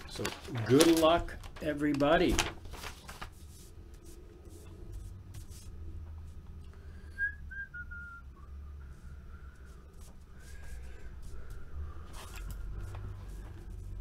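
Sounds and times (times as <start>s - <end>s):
person whistling: 7.0s - 9.9s.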